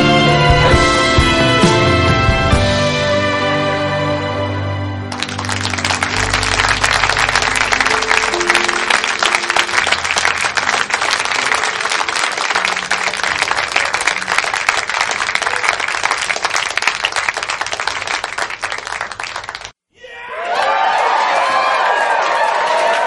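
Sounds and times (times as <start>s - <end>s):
audience applauding: 5.1s - 19.8s, 20.4s - 23.0s.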